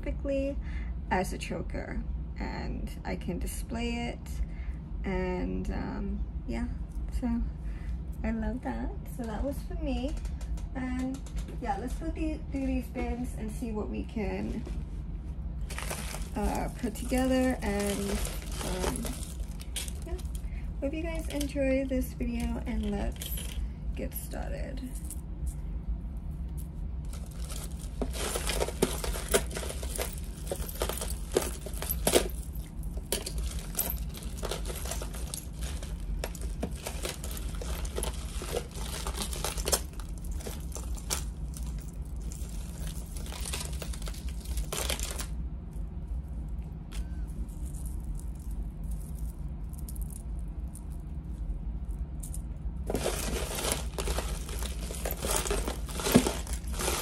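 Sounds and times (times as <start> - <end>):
steady low hum: 0.0 - 57.0
rustling handling noise: 14.5 - 25.6, 26.2 - 57.0
jewelry clinking and rattling: 15.6 - 25.6, 26.2 - 45.4, 46.9 - 57.0.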